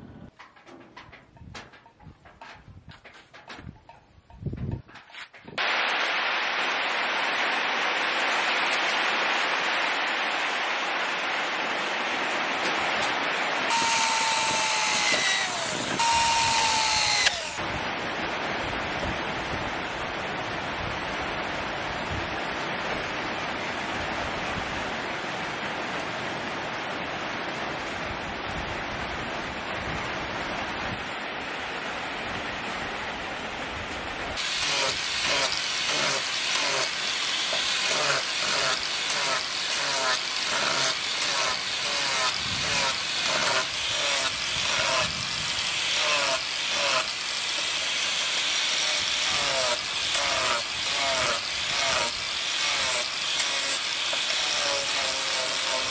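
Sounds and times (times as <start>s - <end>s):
angle grinder sanding wood: 13.7s - 17.6s, 34.4s - 55.9s
power tool spinning down: 13.7s - 17.6s.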